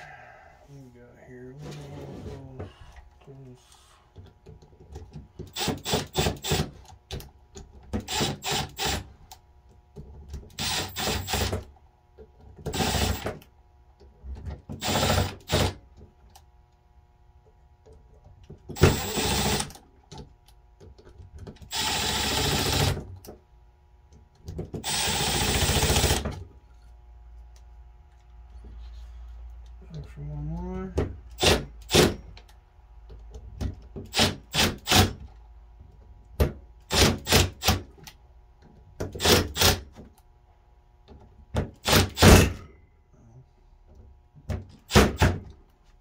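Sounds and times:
cordless power driver whirring: 21.7s - 23.0s.

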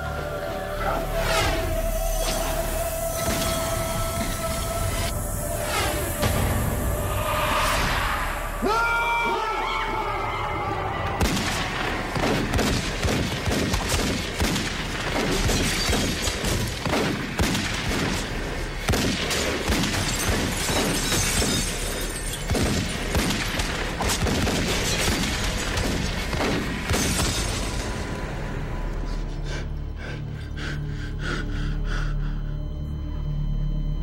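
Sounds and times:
background music: 0.0s - 34.0s
gunfire: 11.2s - 21.6s, 22.5s - 27.5s.

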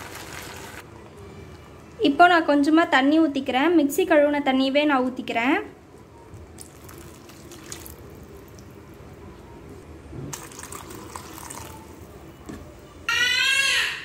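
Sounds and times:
water pouring into frying pan: 0.0s - 0.8s, 6.6s - 8.4s, 10.3s - 11.8s.

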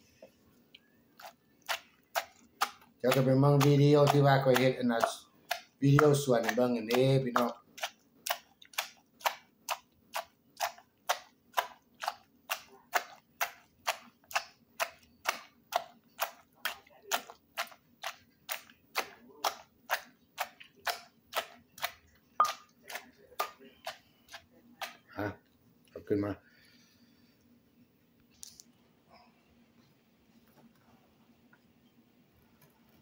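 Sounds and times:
wooden pestle pounding in mortar: 1.2s - 25.1s.

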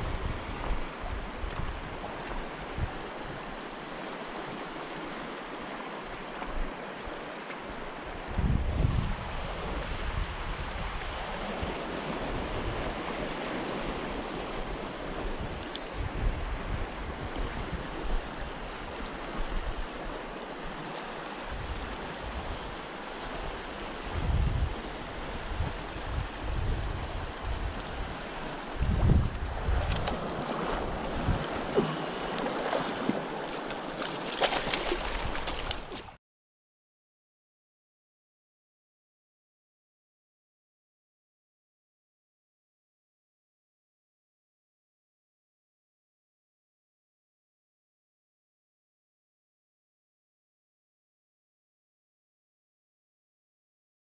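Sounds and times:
wind rumble on microphone: 0.0s - 5.4s, 7.7s - 33.4s.

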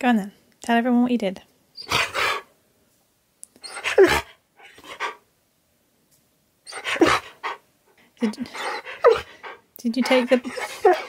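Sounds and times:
dog vocalising: 1.8s - 2.5s, 3.6s - 5.2s, 6.7s - 7.6s, 8.2s - 11.0s.

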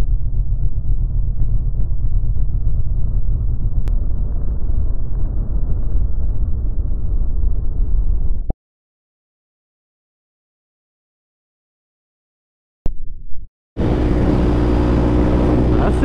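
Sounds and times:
road rumble: 13.8s - 16.0s
wind buffeting microphone: 13.8s - 16.0s.

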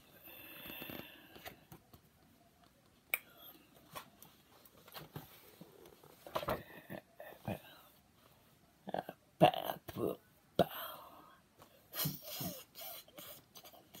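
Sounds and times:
book pages rustling and flipping: 3.8s - 6.6s.

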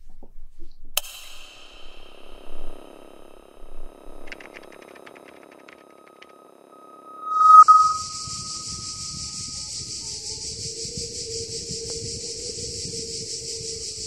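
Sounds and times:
low pulsing hum: 0.8s - 8.3s
high steady hiss: 1.0s - 6.6s
steady electronic tone: 1.0s - 8.3s.

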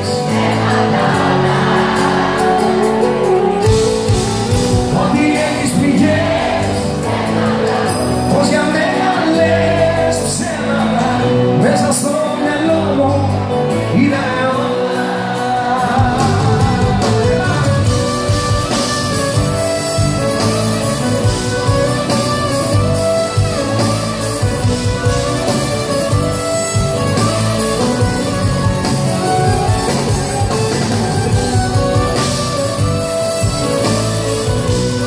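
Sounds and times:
person singing: 0.0s - 19.5s
drums: 0.0s - 35.0s
guitars: 0.0s - 35.0s
violin: 16.2s - 35.0s.

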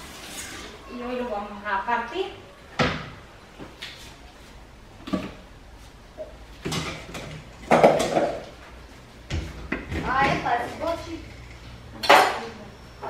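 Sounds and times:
bowls and dishes clattering: 6.2s - 8.5s.

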